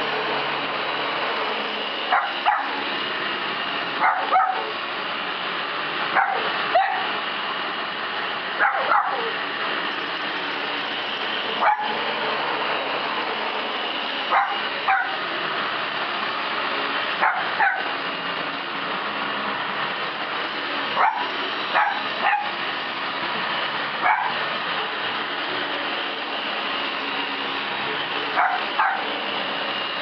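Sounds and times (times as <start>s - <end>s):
vacuum cleaner motor whirring: 0.0s - 30.0s
dogs barking: 2.1s - 2.9s, 4.0s - 4.8s, 6.1s - 7.2s, 8.6s - 9.4s, 11.6s - 12.0s, 14.3s - 15.3s, 17.2s - 18.0s, 21.0s - 22.6s, 24.0s - 24.4s, 28.2s - 29.2s.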